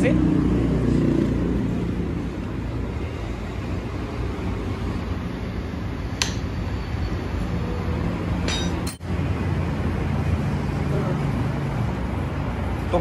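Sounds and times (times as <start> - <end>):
metal wrench clinking: 8.5 - 9.0.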